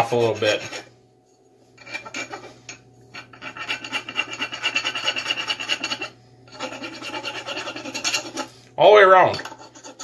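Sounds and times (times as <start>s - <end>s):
rasp filing wood: 0.0s - 0.9s, 3.2s - 8.5s, 9.4s - 10.0s.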